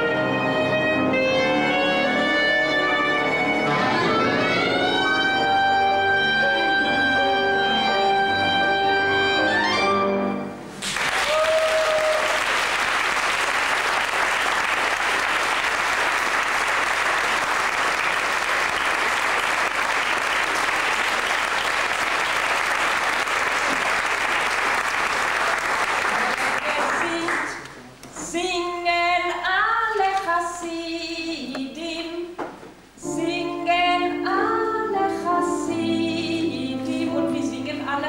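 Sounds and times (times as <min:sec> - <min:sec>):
clarinet cello and violin chord: 0:00.0 - 0:10.4
audience applauding: 0:10.7 - 0:27.8.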